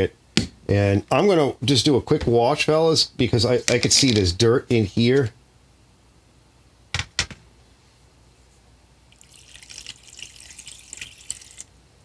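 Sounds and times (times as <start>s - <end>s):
water spraying and spattering: 9.1s - 11.7s.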